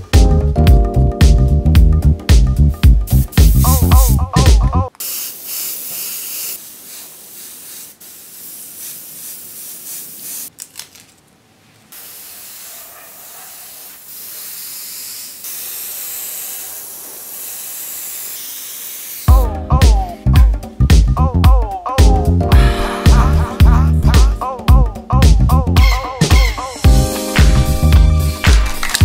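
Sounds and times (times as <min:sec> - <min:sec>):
airbrush spraying hiss: 0:03.0 - 0:04.2, 0:04.9 - 0:10.6, 0:11.9 - 0:19.5.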